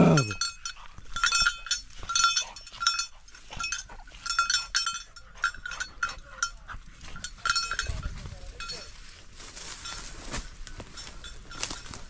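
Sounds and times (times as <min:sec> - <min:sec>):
dog collar bell clanking: 0:00.0 - 0:09.0, 0:09.8 - 0:12.0.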